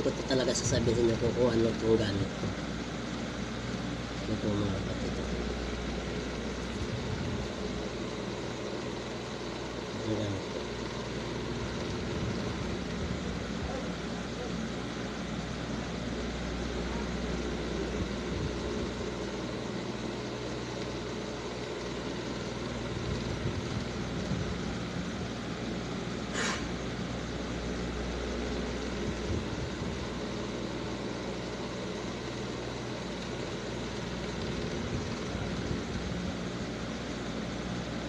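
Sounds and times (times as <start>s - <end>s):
low mechanical hum: 0.0s - 38.0s
short hiss: 26.3s - 26.8s.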